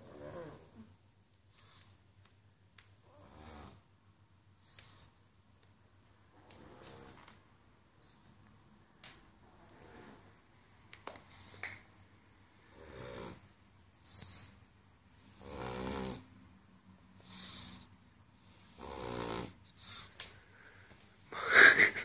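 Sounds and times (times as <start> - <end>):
dog snoring: 0.0 - 0.9, 3.0 - 3.8, 9.4 - 10.3, 12.6 - 14.5, 15.2 - 16.3, 17.2 - 20.1.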